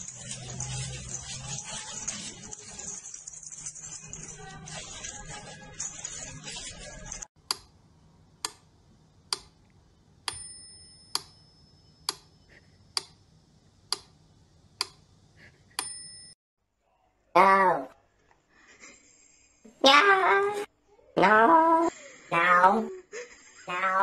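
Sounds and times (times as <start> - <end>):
high chime: 10.3 - 12.4.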